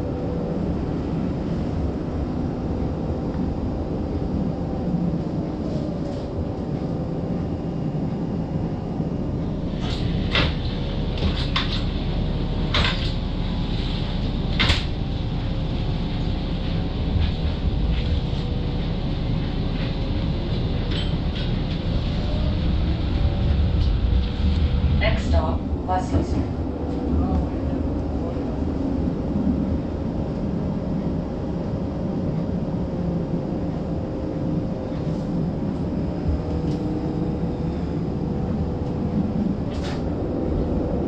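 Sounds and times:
low motor hum: 0.0 - 41.0
streetcar wheels rumbling on rail: 0.0 - 41.0.

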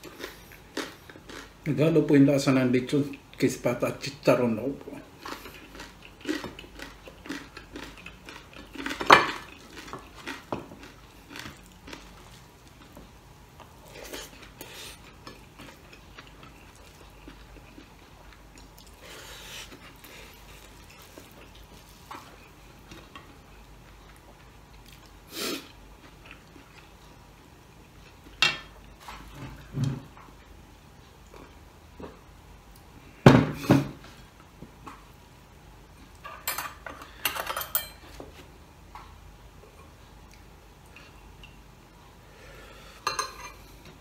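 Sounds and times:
chewing: 0.0 - 1.6, 5.1 - 27.2
plates and cutlery clinking: 36.2 - 38.2, 43.0 - 43.7.

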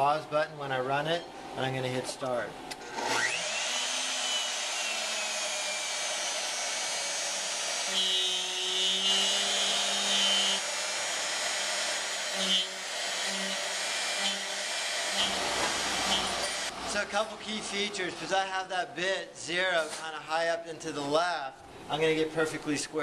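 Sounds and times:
router spindle whine: 2.8 - 16.7.

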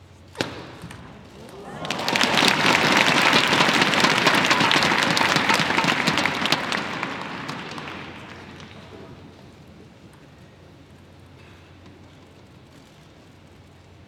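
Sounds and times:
crowd applauding: 0.4 - 10.6.

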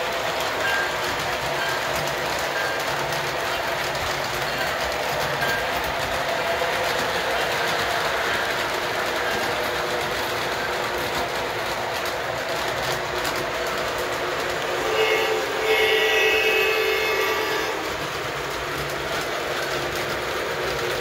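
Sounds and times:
wheels running over track: 0.0 - 21.0
model train motor whirring: 4.8 - 21.0.

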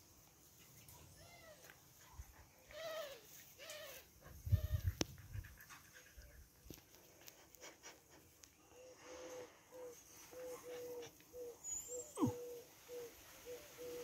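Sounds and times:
dogs yipping: 10.4 - 12.6.

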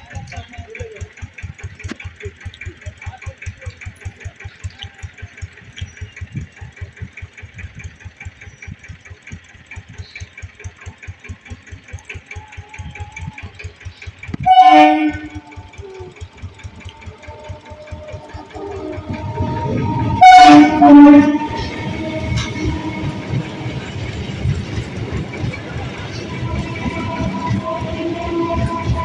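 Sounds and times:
rapid clicking: 0.0 - 29.0
train running: 0.0 - 29.0
train horn blast: 14.4 - 16.1, 16.8 - 24.1, 25.7 - 29.0.

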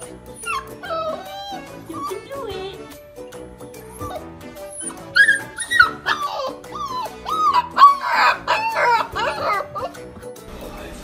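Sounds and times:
puppy howling: 0.0 - 2.4, 3.8 - 10.1
background music: 0.0 - 11.0.

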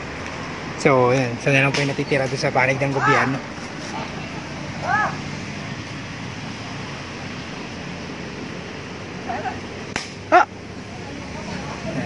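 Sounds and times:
person shouting: 3.0 - 3.4, 4.8 - 5.2, 10.3 - 10.5
sharp pop: 9.9 - 10.2.

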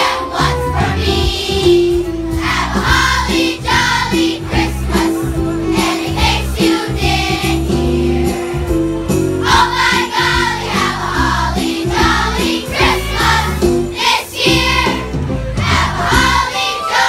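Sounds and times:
children's choir singing: 0.0 - 8.8, 9.4 - 17.0
instrumental accompaniment: 0.0 - 17.0.

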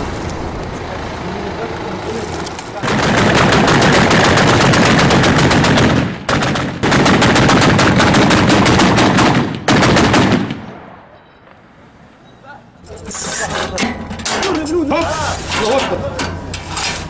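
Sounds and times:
machine-gun fire: 2.8 - 10.9.

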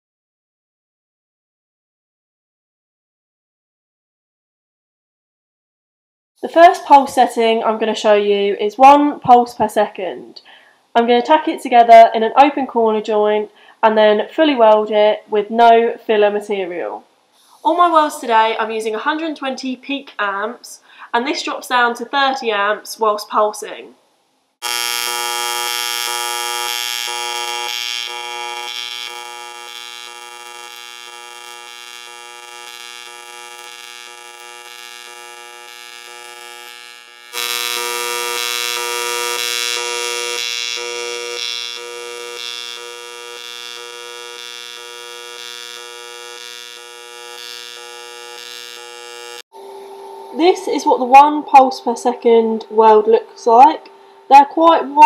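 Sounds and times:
welding arc buzzing: 24.6 - 49.5.

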